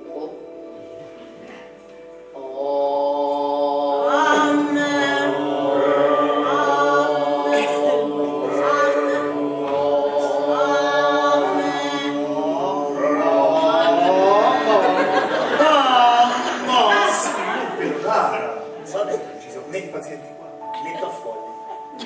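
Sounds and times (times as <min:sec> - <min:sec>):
group of voices chanting: 0:02.4 - 0:17.8.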